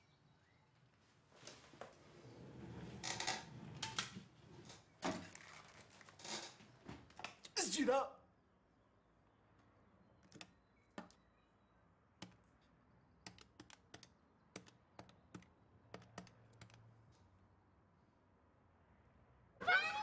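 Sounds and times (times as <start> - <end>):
keyboard keys pressed: 10.2 - 11.2, 13.2 - 16.8.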